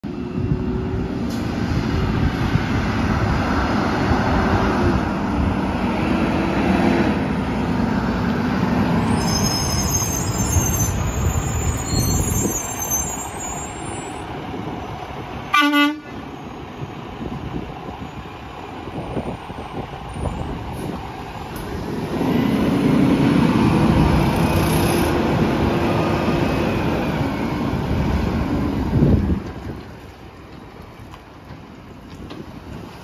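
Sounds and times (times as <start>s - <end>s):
truck horn toot: 15.5s - 16.2s.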